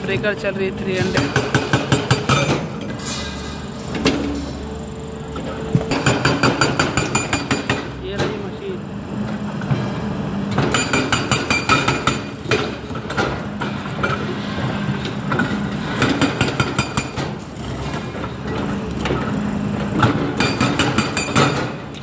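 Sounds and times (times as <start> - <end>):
hydraulic breaker pounding rock: 0.0 - 4.7, 5.3 - 22.0
excavator diesel engine running: 3.4 - 20.8.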